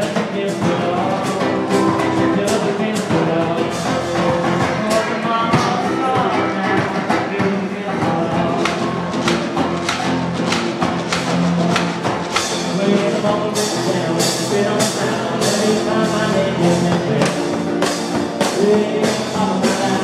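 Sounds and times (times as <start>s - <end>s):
drum beat: 0.0s - 20.0s
electric guitar rhythm: 0.0s - 20.0s.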